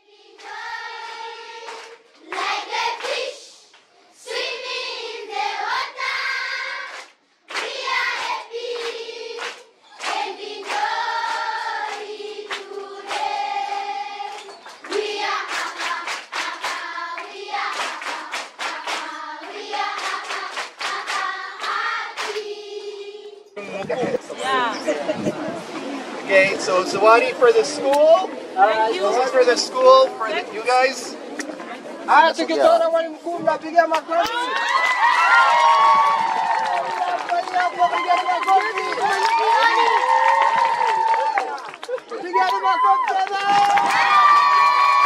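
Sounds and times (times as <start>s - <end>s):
children singing in chorus: 0.0s - 23.5s
children clapping hands: 0.4s - 3.9s, 6.7s - 22.5s, 33.9s - 45.0s.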